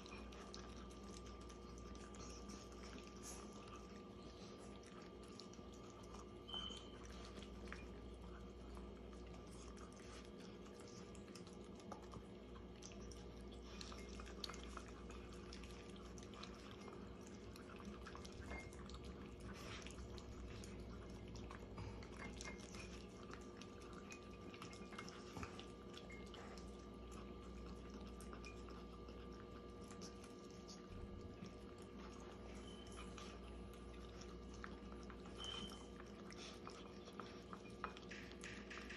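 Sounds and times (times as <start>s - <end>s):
dogs chewing food: 0.0s - 38.9s
steady low hum: 0.0s - 38.9s
food clicking against bowls: 37.2s - 38.9s.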